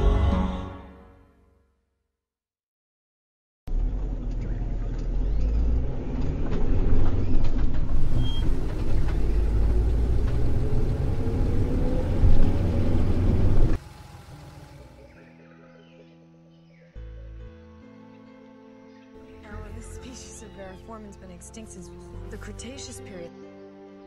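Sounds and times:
vehicle engine running: 0:03.7 - 0:15.3.

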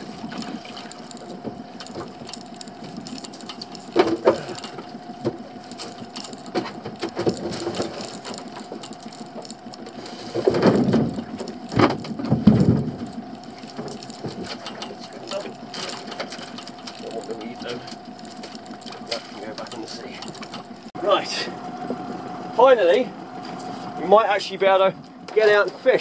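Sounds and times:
faint steady hum: 0:00.0 - 0:26.0
wooden pallet knocking and scraping: 0:10.2 - 0:13.1.

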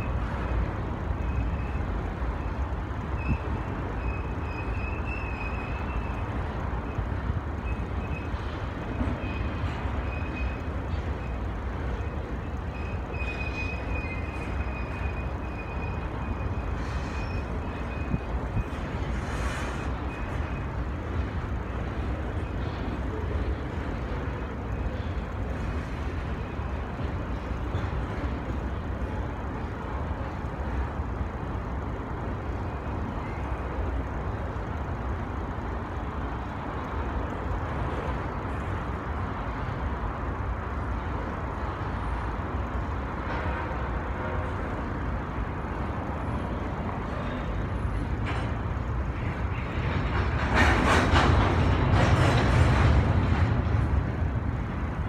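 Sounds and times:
train rumbling across bridge: 0:00.0 - 0:55.0
faint high squeal: 0:12.7 - 0:20.7.

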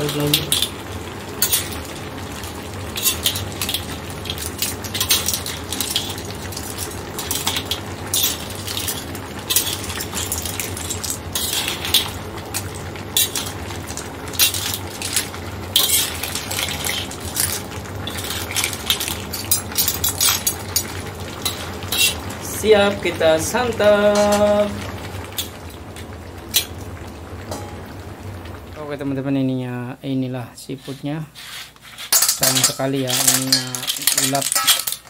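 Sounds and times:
metal spatula scraping a wok: 0:21.4 - 0:22.2, 0:31.4 - 0:35.0
low hum: 0:22.3 - 0:29.2.

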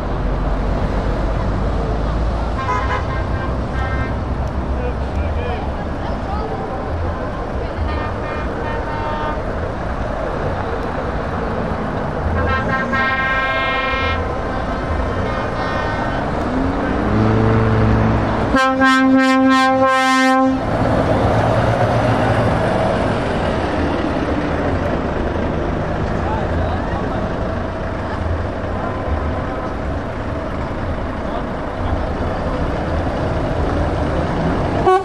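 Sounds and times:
diesel trucks rolling past: 0:00.0 - 0:35.0
truck air horn blast: 0:02.6 - 0:04.2, 0:07.9 - 0:09.4, 0:12.3 - 0:14.3, 0:18.5 - 0:20.7
higher-pitched horn: 0:12.4 - 0:14.3, 0:18.5 - 0:20.7.

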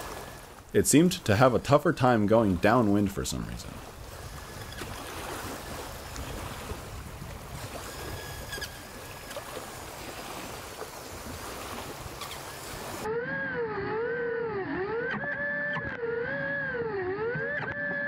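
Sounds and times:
choppy water: 0:00.0 - 0:18.0
wind: 0:00.0 - 0:18.0
model boat motor whine: 0:12.5 - 0:18.0.

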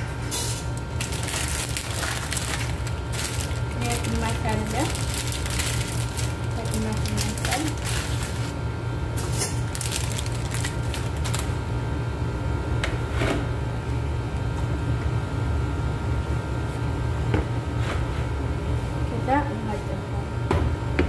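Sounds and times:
plastic packaging crinkling: 0:00.6 - 0:08.6, 0:09.2 - 0:11.6.

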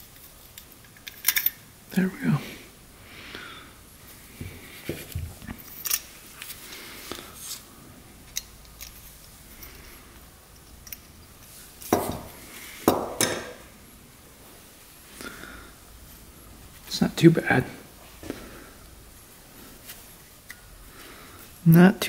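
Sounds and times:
metal parts clicking: 0:00.5 - 0:01.6, 0:05.6 - 0:06.5, 0:08.3 - 0:11.4.

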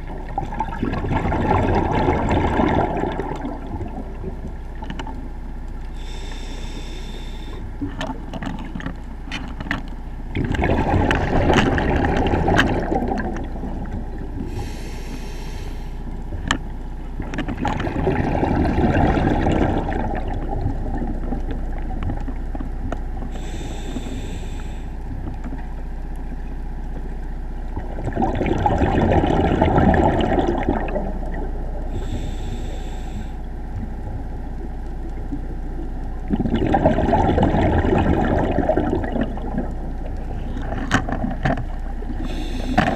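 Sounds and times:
exhaled bubbles burbling: 0:00.0 - 0:05.4, 0:10.3 - 0:15.1, 0:17.1 - 0:23.9, 0:27.7 - 0:32.4, 0:33.7 - 0:42.9
low hum: 0:00.0 - 0:42.9
regulator inhale hiss: 0:05.9 - 0:07.8, 0:14.4 - 0:16.2, 0:23.3 - 0:25.2, 0:31.9 - 0:33.6, 0:42.2 - 0:42.9.

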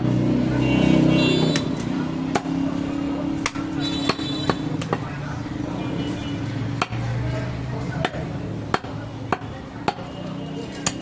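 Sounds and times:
cleaver chopping on wooden block: 0:01.6 - 0:02.6, 0:03.4 - 0:05.1, 0:06.8 - 0:07.0, 0:08.0 - 0:10.1.

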